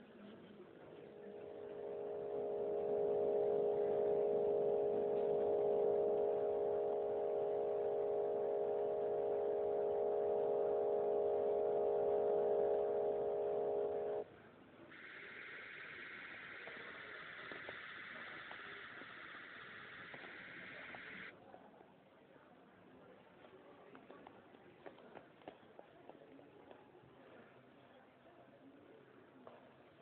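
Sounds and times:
steady electronic hum: 0.8s - 14.3s, 14.9s - 21.3s.

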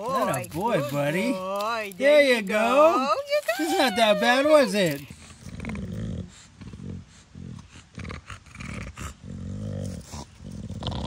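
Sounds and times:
dog heavy breathing: 5.0s - 10.6s
dog growling grunts: 5.2s - 11.0s.

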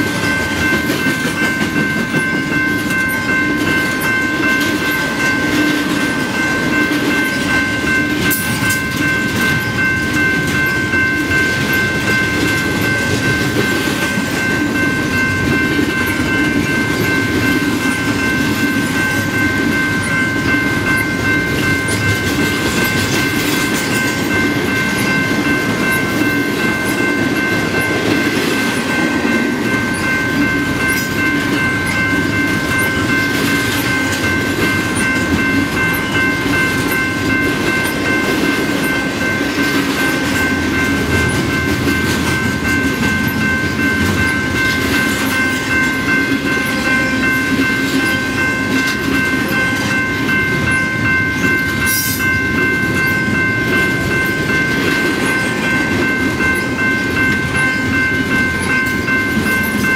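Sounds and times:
freight train rumbling and rattling: 0.0s - 59.9s
steady high-pitched tone: 0.0s - 59.9s.

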